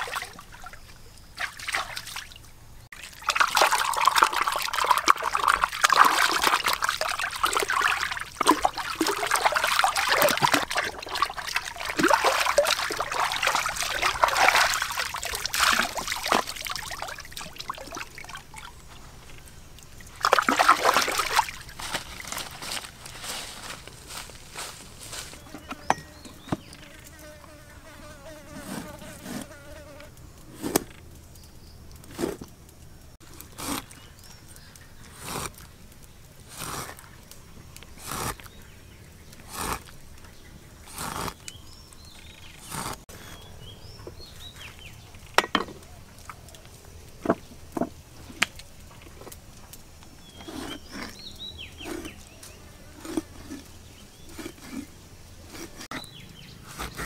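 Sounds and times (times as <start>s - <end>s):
background buzz: 0.0s - 57.0s.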